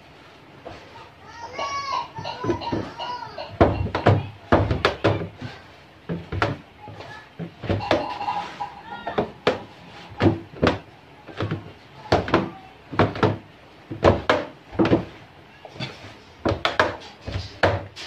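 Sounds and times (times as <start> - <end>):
dough thumping in plastic basin: 3.5 - 8.1, 9.0 - 15.2, 16.4 - 18.0.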